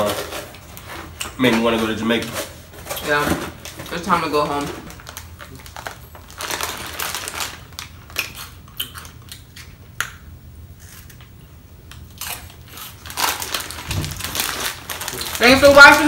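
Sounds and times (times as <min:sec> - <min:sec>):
foil snack bags crinkling: 0:00.0 - 0:09.4, 0:12.2 - 0:16.0
crunchy snacks being chewed: 0:04.9 - 0:10.2, 0:11.9 - 0:15.5.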